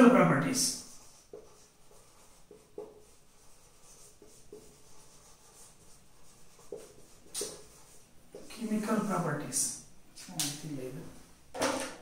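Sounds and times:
marker squeaking on whiteboard: 0.4s - 8.5s.

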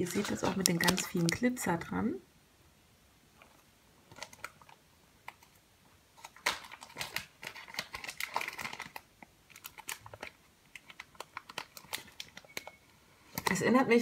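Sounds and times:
plastic bag crinkling: 0.0s - 1.7s, 3.4s - 5.5s, 6.2s - 12.8s.

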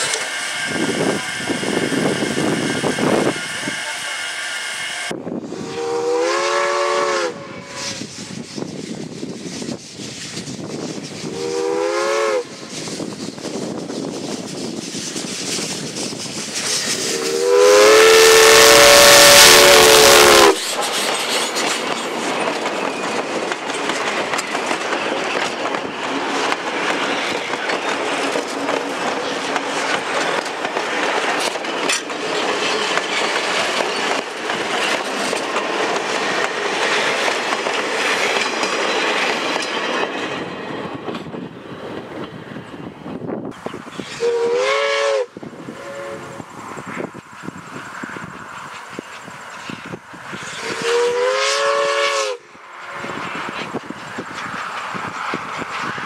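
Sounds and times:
steam locomotive whistle blasts: 0.0s - 8.2s, 11.2s - 12.6s, 16.7s - 21.0s, 44.1s - 46.4s, 50.5s - 53.2s
train coaches rolling on rails: 0.0s - 56.0s.

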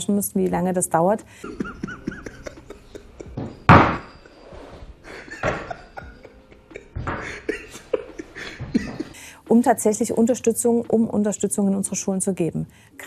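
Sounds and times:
man laughing hard: 1.4s - 4.4s, 5.0s - 9.2s.

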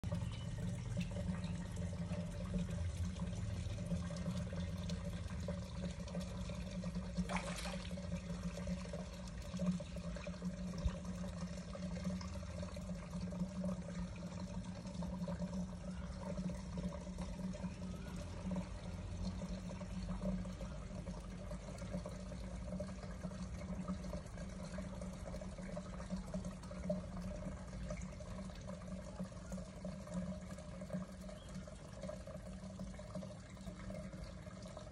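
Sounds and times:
pond water running: 0.0s - 34.9s.

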